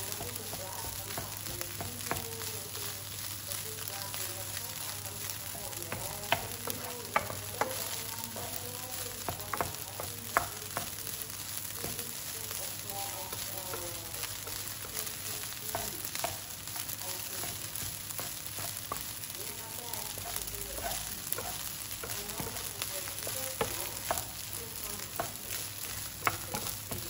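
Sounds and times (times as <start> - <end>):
rice and onion sizzling in a pan: 0.0 - 27.0
wooden spoon stirring: 0.0 - 27.0
spoon knocking against pan: 5.9 - 11.0.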